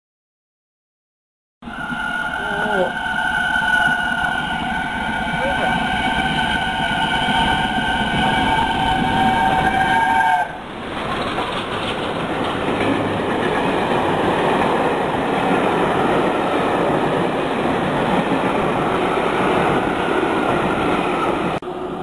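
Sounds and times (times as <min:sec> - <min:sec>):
train running past: 0:01.6 - 0:22.0
steam locomotive whistle: 0:01.7 - 0:10.6.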